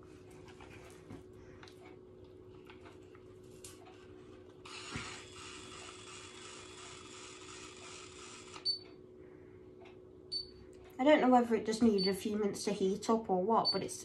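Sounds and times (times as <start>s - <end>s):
hair styler hissing: 4.7s - 8.6s.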